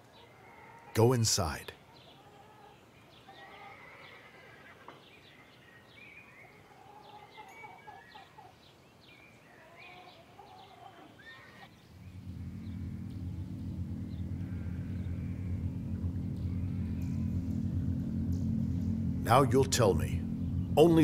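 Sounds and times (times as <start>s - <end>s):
faint birds chirping: 0.0s - 21.0s
steady low rumble: 12.0s - 21.0s.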